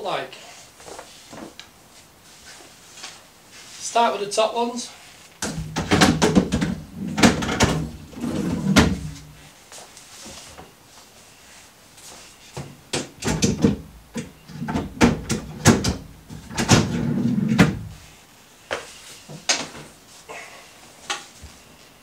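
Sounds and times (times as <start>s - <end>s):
wooden drawer knocks and clatters: 5.4s - 9.2s
drawer sliding on metal runners: 5.8s - 9.3s, 14.5s - 17.9s.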